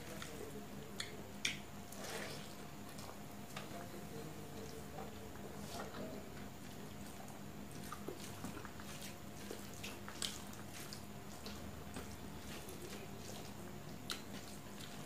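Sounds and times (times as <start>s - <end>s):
fingers squishing wet food: 0.0s - 2.2s, 6.6s - 15.0s.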